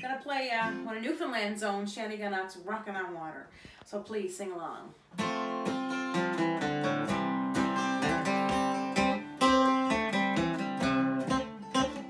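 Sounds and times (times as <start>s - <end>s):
acoustic guitar strumming: 0.0s - 1.2s, 5.1s - 12.0s.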